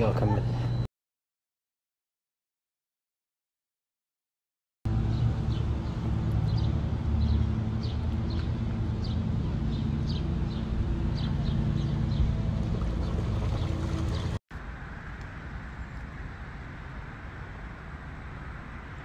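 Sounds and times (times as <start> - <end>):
low motor hum: 4.9 - 19.0.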